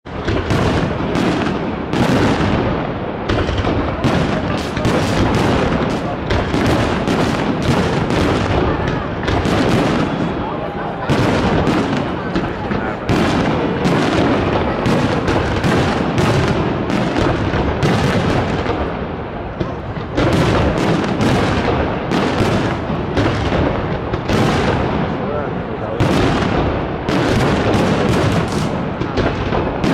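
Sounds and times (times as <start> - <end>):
fireworks bangs and crackles: 0.0 - 29.9.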